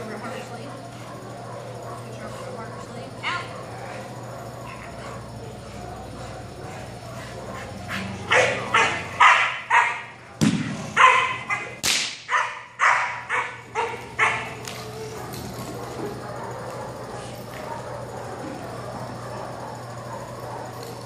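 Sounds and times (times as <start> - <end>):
puppy barking sharply: 8.3 - 10.1, 11.0 - 14.6.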